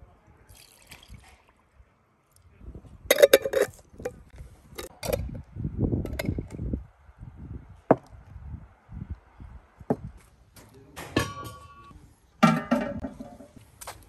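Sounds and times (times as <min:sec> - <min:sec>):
glass jars clinking: 0:03.1 - 0:03.8.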